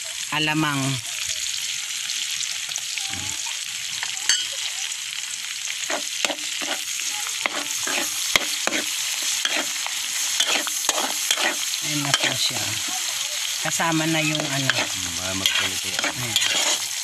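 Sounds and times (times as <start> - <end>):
food sizzling in a wok: 0.0 - 17.0
spatula scraping wok: 5.8 - 17.0.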